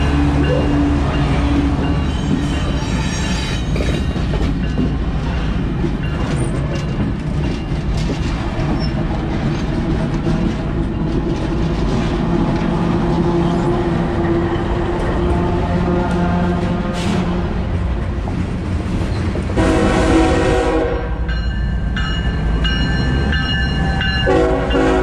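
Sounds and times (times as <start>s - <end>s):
locomotive engines rumbling: 0.0s - 25.0s
steel wheels on rails: 0.0s - 25.0s.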